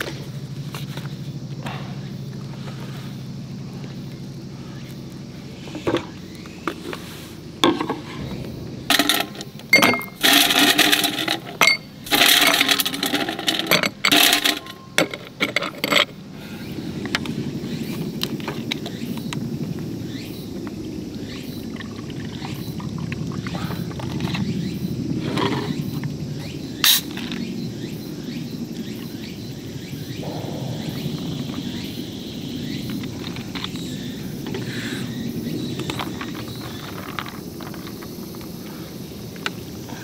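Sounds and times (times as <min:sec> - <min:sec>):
ice cubes clinking into glass: 0:08.9 - 0:15.2.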